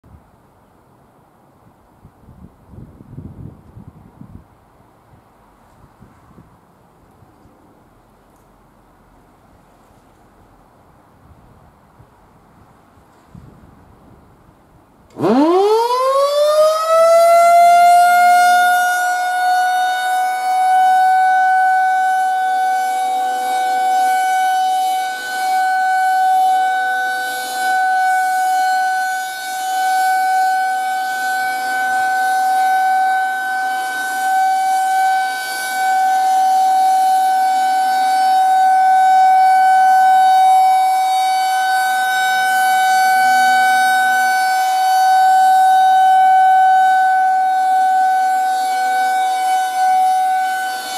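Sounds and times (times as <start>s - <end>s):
warning siren steady tone: 15.1s - 50.9s.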